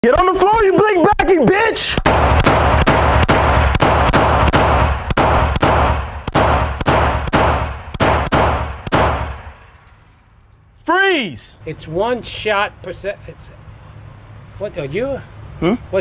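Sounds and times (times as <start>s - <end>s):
rapid handgun fire: 1.9s - 9.5s.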